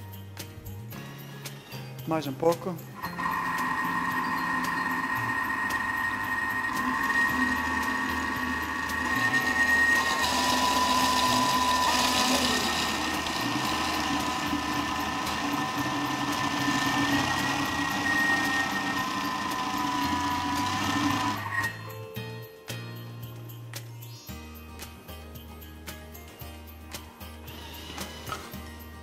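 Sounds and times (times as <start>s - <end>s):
kitchen robot motor whining: 3.0s - 21.9s.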